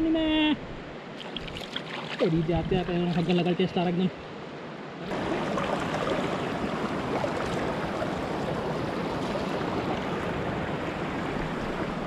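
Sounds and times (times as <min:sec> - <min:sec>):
river water rushing over rocks: 0:01.0 - 0:12.0.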